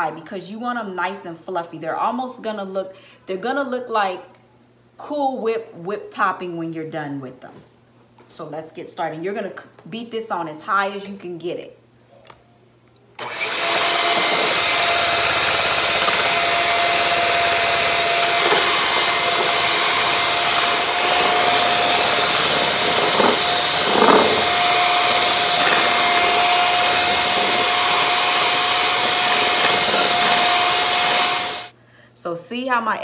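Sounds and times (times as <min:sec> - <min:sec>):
electric hand mixer whining: 0:13.2 - 0:31.7.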